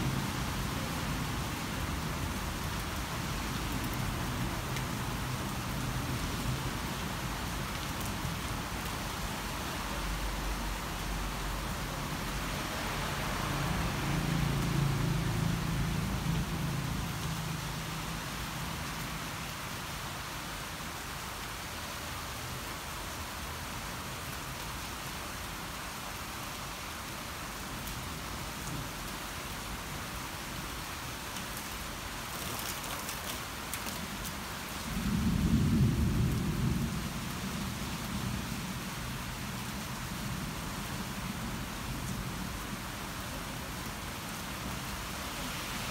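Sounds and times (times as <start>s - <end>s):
steady rain: 0.0s - 45.9s
thunder rumbling: 34.9s - 37.4s.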